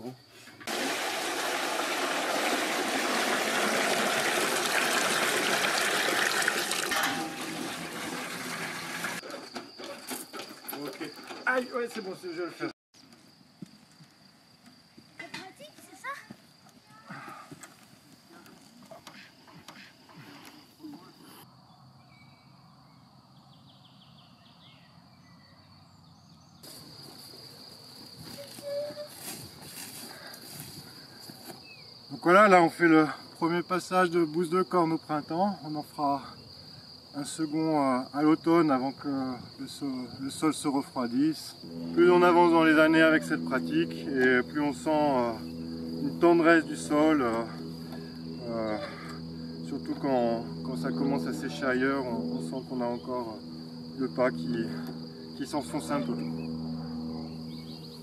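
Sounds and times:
crickets chirring: 0.0s - 58.0s
liquid pouring into barrel: 0.7s - 9.2s.

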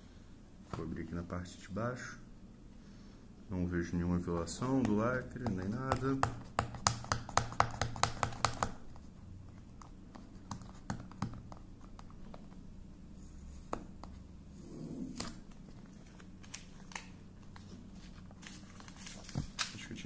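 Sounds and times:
fingers tapping cardboard box: 4.8s - 8.8s, 9.8s - 12.1s.

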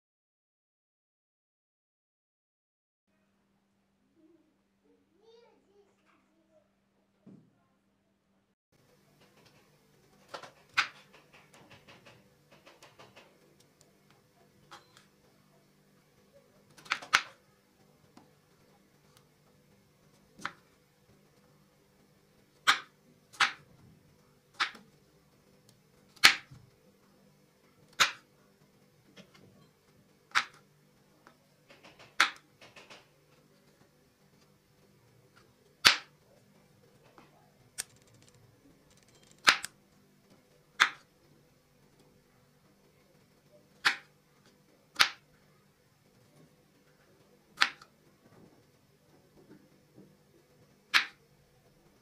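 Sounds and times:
small crackles: 31.2s - 45.5s.

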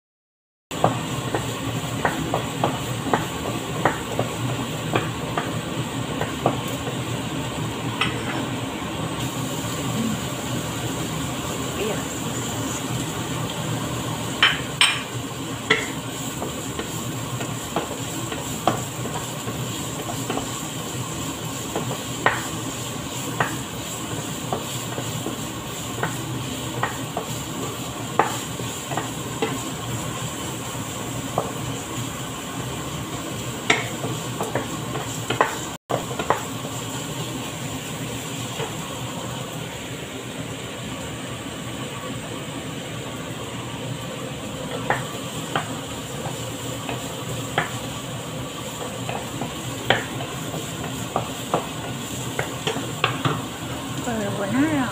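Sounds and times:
spatula stirring onion: 0.7s - 39.8s, 43.5s - 54.9s
spatula knocking against pan: 14.4s - 15.1s, 15.7s - 17.0s, 21.7s - 22.5s, 26.8s - 27.4s, 28.2s - 29.6s, 49.0s - 53.4s.

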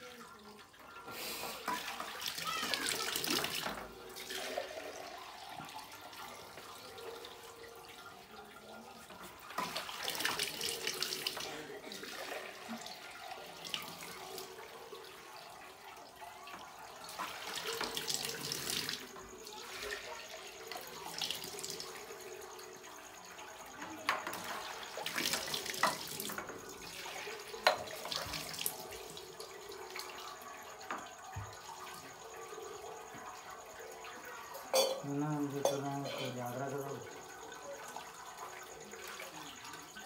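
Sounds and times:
milk pouring onto metal: 1.6s - 22.4s.

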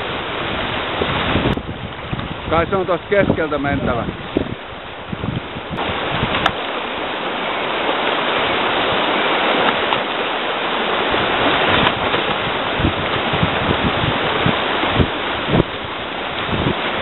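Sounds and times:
whitewater rushing: 0.0s - 17.0s.

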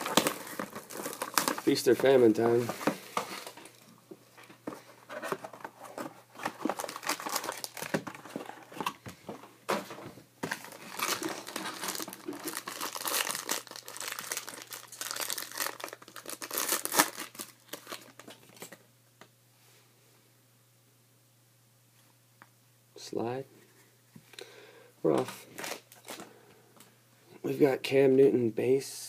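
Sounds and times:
foil wrapper crinkling and tearing: 0.0s - 2.0s, 6.4s - 8.4s, 10.5s - 18.7s.

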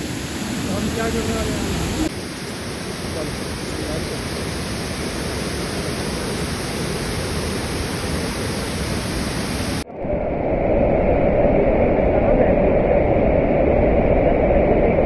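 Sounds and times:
waterfall rushing: 0.0s - 9.8s.

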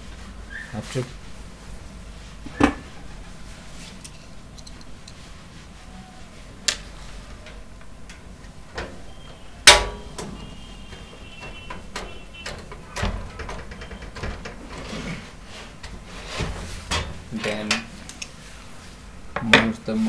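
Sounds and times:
loud ringing metal knock: 9.6s - 12.2s.

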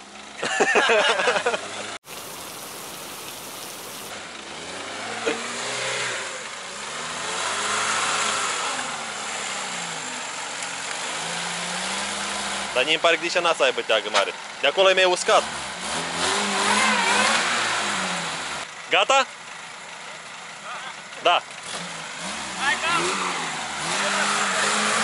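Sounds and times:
engine revving: 2.1s - 10.3s, 15.4s - 18.6s, 21.6s - 25.0s.

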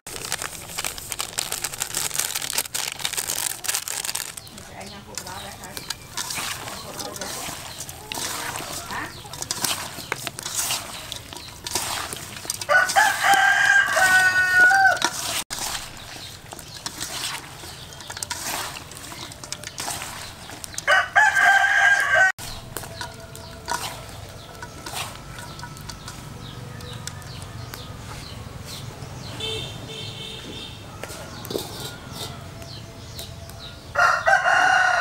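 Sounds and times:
wet squelches of hands kneading: 0.0s - 29.6s
rooster crowing: 12.6s - 15.2s, 20.8s - 22.4s, 30.8s - 33.0s, 33.8s - 35.0s.

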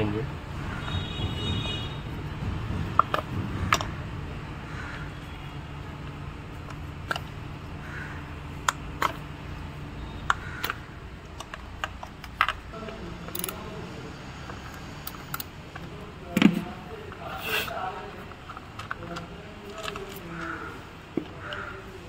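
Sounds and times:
plastic connectors clicking: 6.0s - 7.4s, 8.6s - 9.2s, 10.2s - 13.7s, 18.3s - 21.7s.

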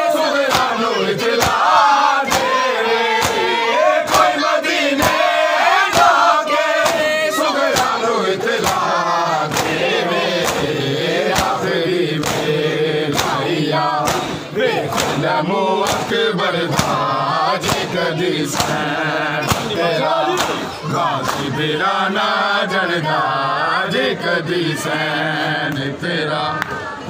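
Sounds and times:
men chanting a lament: 0.0s - 27.0s
hands slapping bare chests: 0.5s - 0.8s, 1.4s - 1.6s, 2.3s - 2.6s, 3.2s - 3.5s, 5.0s - 5.3s, 5.9s - 6.2s, 6.8s - 7.1s, 7.7s - 8.0s, 8.6s - 8.9s, 9.5s - 9.8s, 10.4s - 10.7s, 11.3s - 11.6s, 12.2s - 13.4s, 14.0s - 15.2s, 15.8s - 17.0s, 17.6s - 17.9s, 18.5s - 21.5s.

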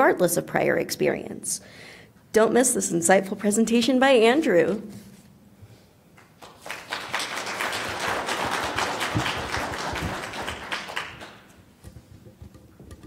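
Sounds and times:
audience clapping: 6.2s - 11.6s.

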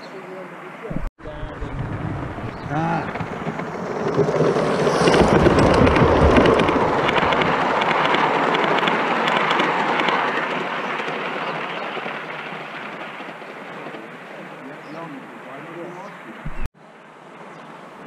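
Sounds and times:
model train running: 1.3s - 15.2s
wheels clicking on track: 1.3s - 15.2s.

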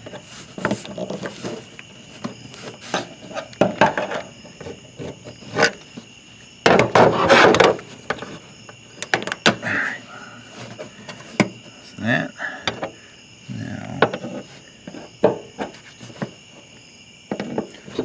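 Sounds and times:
rustling scrape: 0.0s - 6.1s, 7.0s - 8.5s, 10.5s - 11.4s, 14.2s - 16.7s.

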